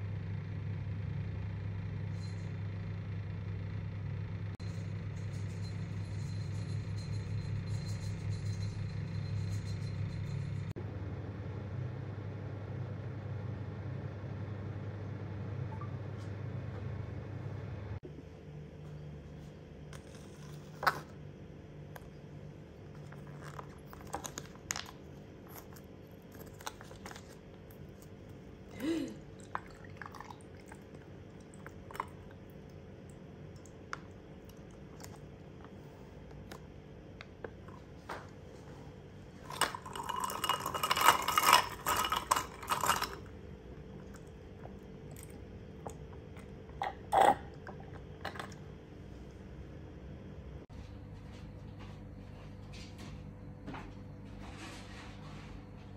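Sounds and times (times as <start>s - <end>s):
ice and glass clicking: 39.5s - 43.3s.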